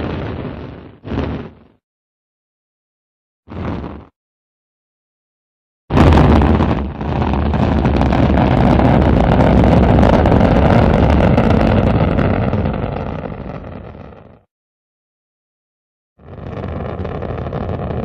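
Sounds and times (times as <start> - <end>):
rocket engine burn: 5.9 - 14.4, 16.2 - 18.0.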